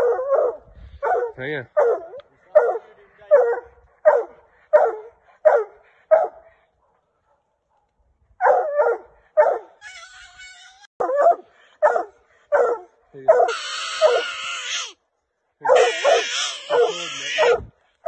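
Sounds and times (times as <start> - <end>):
dog barking: 0.0 - 9.8, 11.0 - 14.3, 15.6 - 17.7.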